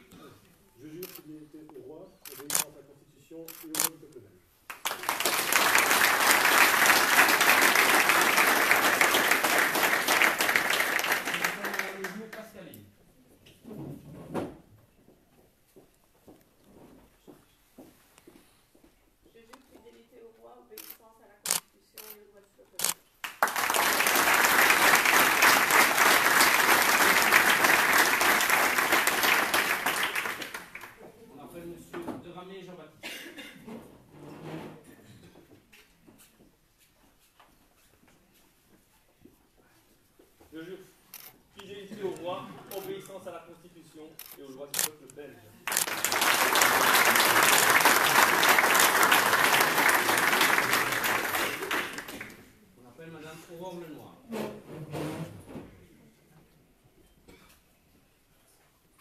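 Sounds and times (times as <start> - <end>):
people applauding: 4.7 - 12.6, 23.2 - 31.0, 45.6 - 52.6
people clapping: 4.7 - 12.7, 23.2 - 31.2, 45.6 - 52.6.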